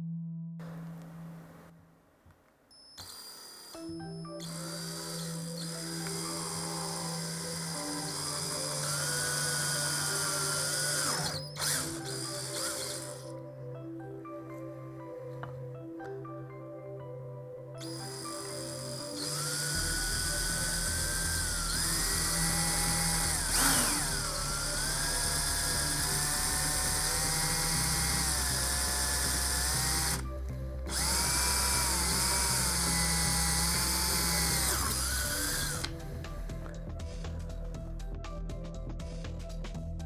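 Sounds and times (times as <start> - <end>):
cordless drill drilling plastic pipe: 3.0 - 13.3, 17.8 - 30.3, 30.9 - 36.7.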